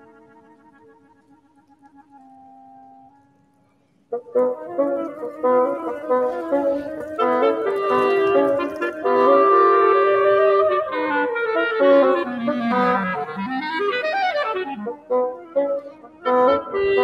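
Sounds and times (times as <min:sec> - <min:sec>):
woodwind trio playing: 0:00.0 - 0:17.0.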